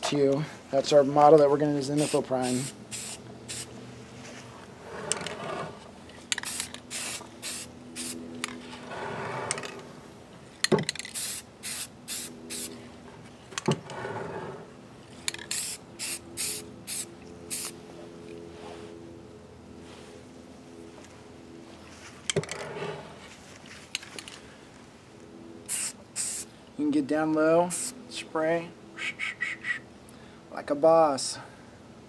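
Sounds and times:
aerosol spray can hissing: 2.0 - 3.7, 6.4 - 8.2, 11.1 - 12.7, 15.5 - 17.8, 25.7 - 26.4.

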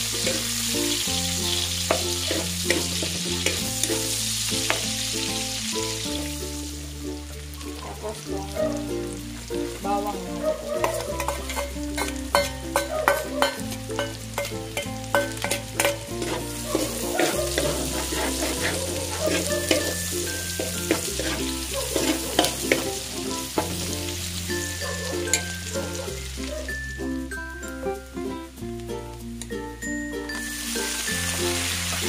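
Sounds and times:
background music with bass line: 0.0 - 32.0
garlic and onion sizzling in oil: 0.0 - 32.0
spatula scraping pan: 1.8 - 3.9, 10.7 - 23.9.

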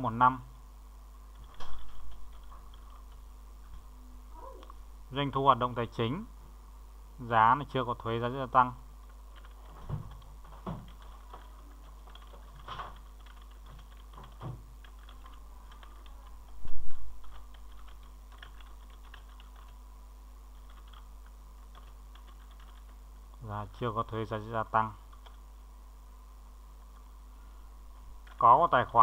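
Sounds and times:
faint steady hum: 0.0 - 29.0
typing on computer keyboard: 1.3 - 3.2, 9.3 - 16.6, 17.2 - 19.8, 20.6 - 23.0, 25.1 - 25.4.

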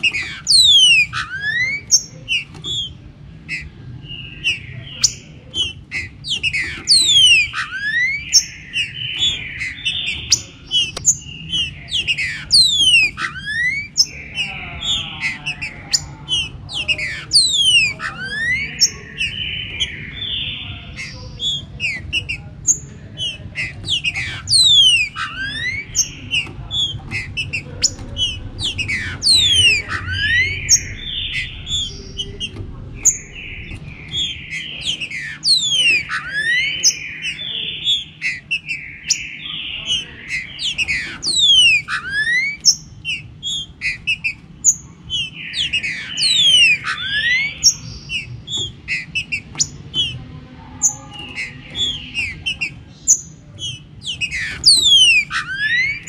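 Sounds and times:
low steady hum: 0.0 - 37.8
birds singing and calling: 0.0 - 56.0
harsh bird chattering: 0.0 - 56.0.

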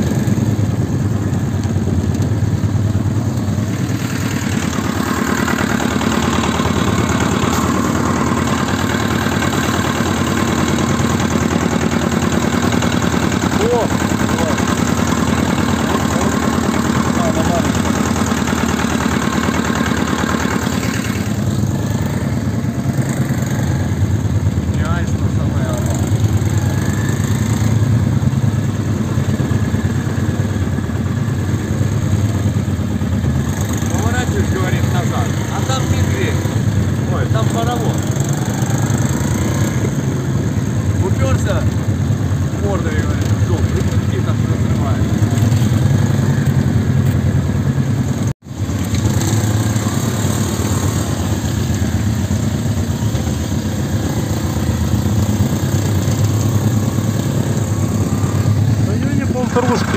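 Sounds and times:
small tractor engine running: 0.0 - 59.9.

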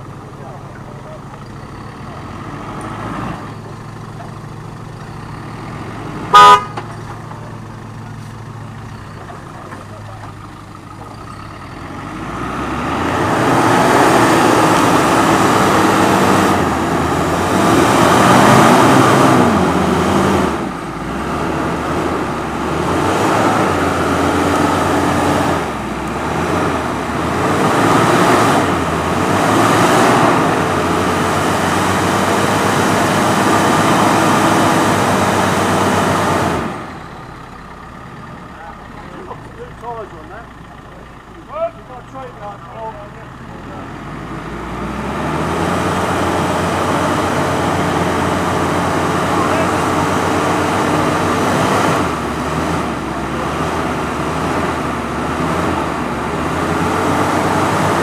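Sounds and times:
car engine running and revving: 0.0 - 58.0
loud car horn toot: 6.3 - 6.9.

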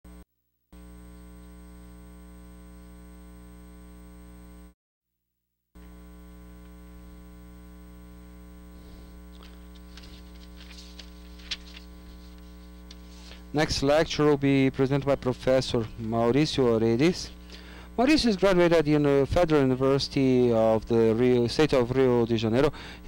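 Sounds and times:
electrical mains hum: 0.8 - 4.7, 5.8 - 23.0
faint clicks and rustles: 9.0 - 13.4.

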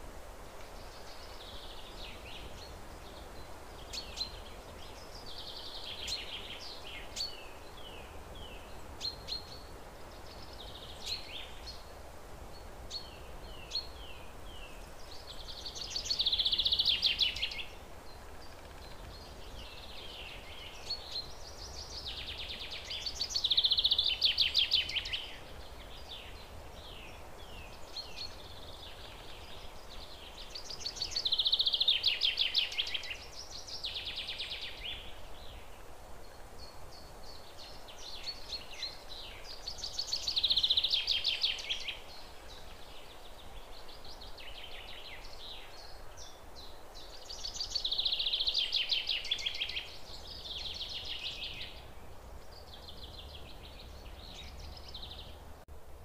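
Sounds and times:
bird chirping: 12.5 - 55.4.

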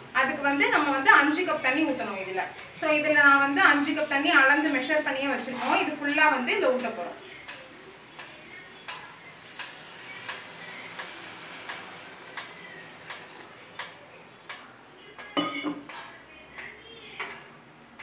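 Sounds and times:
utensils clinking on pans: 5.5 - 16.2
water pouring into hot pan: 9.4 - 13.9.

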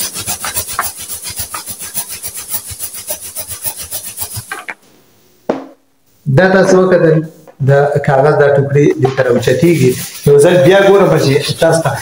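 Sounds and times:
balloon rubbed against cloth: 0.0 - 4.8, 8.9 - 12.0
short thump: 5.5 - 5.8.

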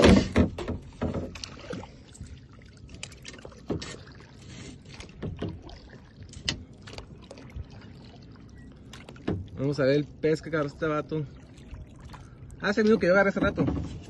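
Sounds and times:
paddle knocks: 0.0 - 1.8, 5.0 - 5.8, 8.9 - 9.5, 13.1 - 14.0
kayak paddle splashing water: 0.0 - 14.0.

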